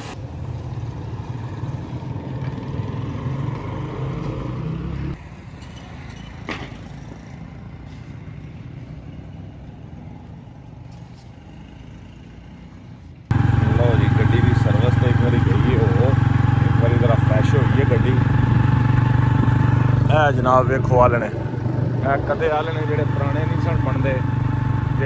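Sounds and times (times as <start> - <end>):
pressure washer pump motor humming: 13.3 - 21.5, 22.1 - 25.0.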